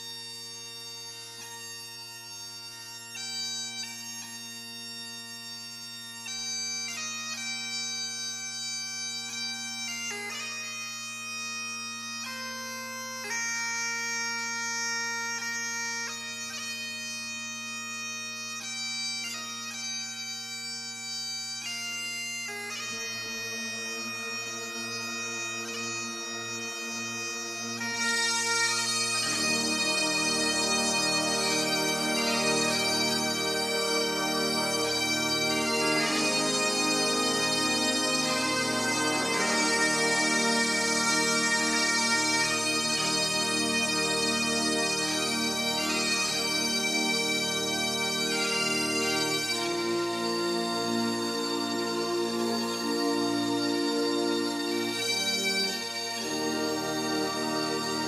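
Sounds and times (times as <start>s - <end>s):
bagpipe music: 0.0s - 58.0s.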